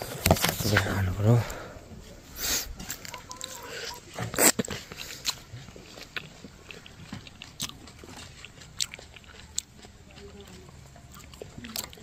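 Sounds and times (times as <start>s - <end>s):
person biting into fruit: 2.4s - 10.0s
soft chewing clicks: 3.0s - 12.0s.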